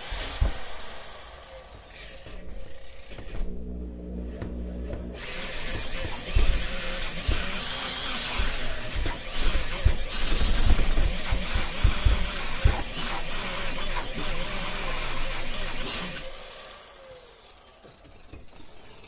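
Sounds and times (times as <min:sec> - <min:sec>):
electric polisher whirring on glass: 0:00.0 - 0:19.0
low thumps: 0:03.2 - 0:10.4.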